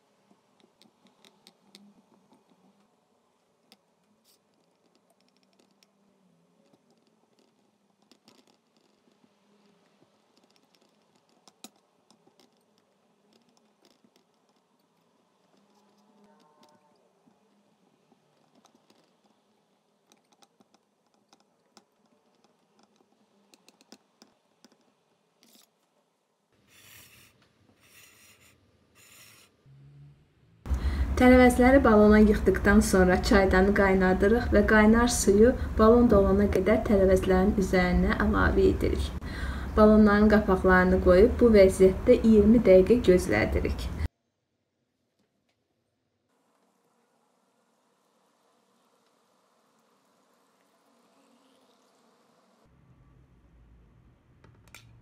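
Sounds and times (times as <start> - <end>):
faint low hum: 0.0 - 44.3, 44.9 - 55.0
rubbing noise: 26.6 - 29.7.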